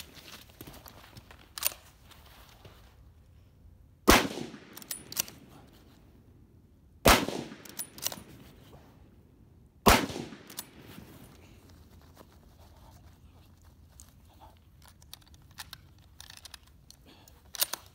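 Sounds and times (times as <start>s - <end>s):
rifle shots: 4.0s - 5.5s, 7.0s - 8.3s, 9.8s - 11.1s.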